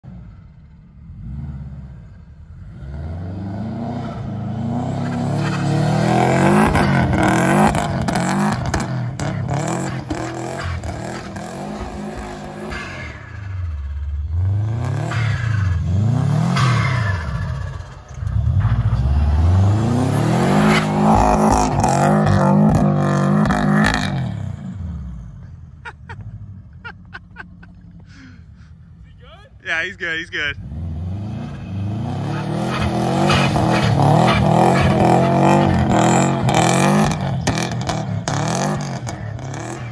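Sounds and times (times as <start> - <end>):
car engine revving: 0.2 - 28.0, 29.8 - 39.9.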